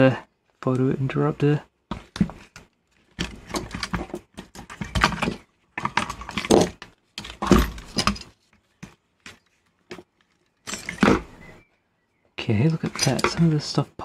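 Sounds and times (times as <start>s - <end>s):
mechanism parts clicking and clattering: 2.5s - 8.4s, 9.9s - 11.2s, 12.7s - 13.6s.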